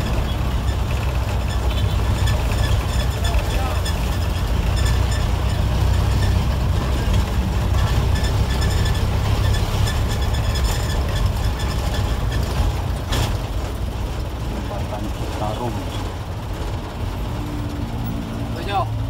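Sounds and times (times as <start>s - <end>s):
bus engine drone: 0.0s - 19.0s
road noise: 0.0s - 19.0s.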